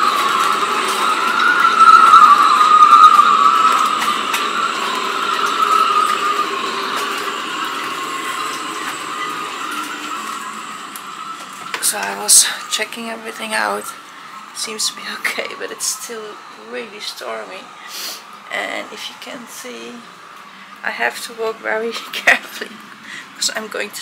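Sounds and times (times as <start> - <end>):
wind whistling through rigging: 0.0 - 20.3.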